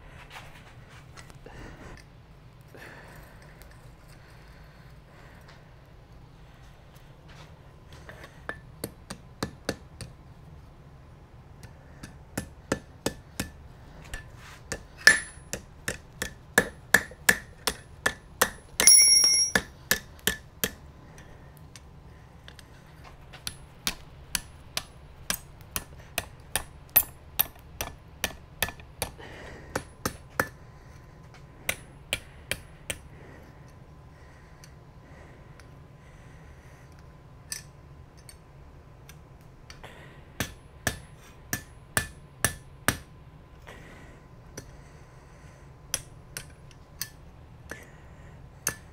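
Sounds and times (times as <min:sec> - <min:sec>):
hammer striking metal on anvil: 0:15.0 - 0:20.8.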